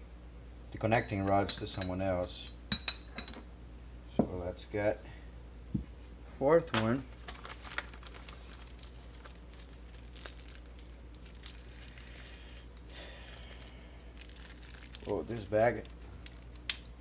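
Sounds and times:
plastic bag crinkling: 6.8 - 17.0.

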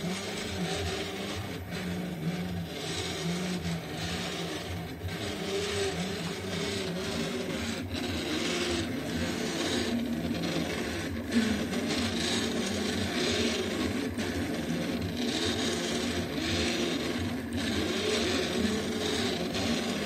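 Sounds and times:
stepper motors humming: 0.0 - 20.0.

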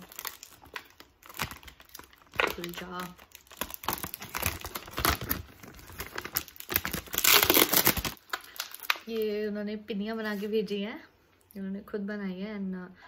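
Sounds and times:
plastic packaging crinkling: 0.0 - 9.5.

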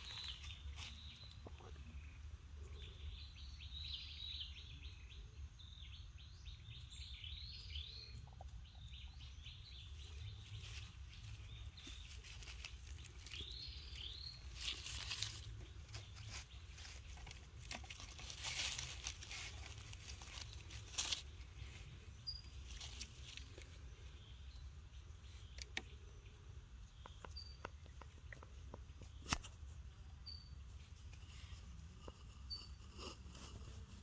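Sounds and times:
faint rustling and crinkling: 0.0 - 2.8, 8.3 - 24.3, 27.0 - 34.0.

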